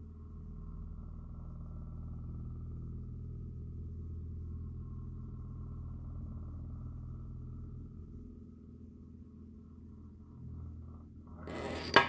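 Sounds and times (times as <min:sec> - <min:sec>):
spinning top whirring: 0:11.5 - 0:12.0.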